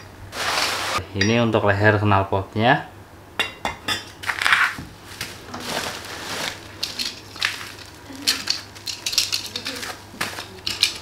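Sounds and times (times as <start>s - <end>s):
plastic packaging crinkling: 5.4s - 11.0s.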